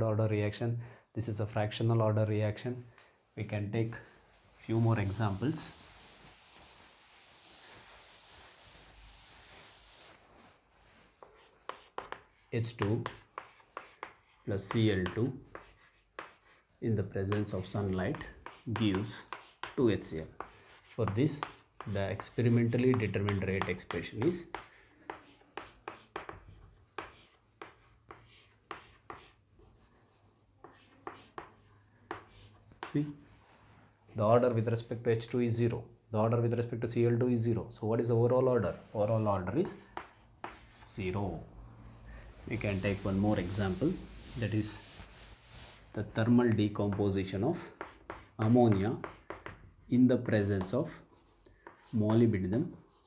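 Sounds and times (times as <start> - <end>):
chalk tapping and scraping: 4.0 - 33.2, 38.8 - 41.2, 42.3 - 53.0
duster rubbing on blackboard: 4.3 - 32.9, 42.3 - 46.2, 46.8 - 49.8.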